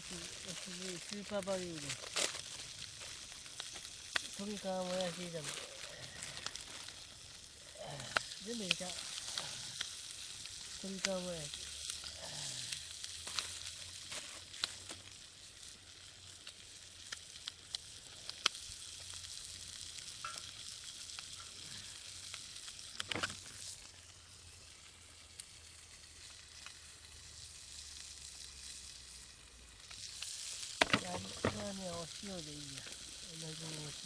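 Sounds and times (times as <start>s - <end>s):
food sizzling in a frying pan: 0.0s - 34.0s
small pops: 0.3s - 24.0s, 29.8s - 31.8s.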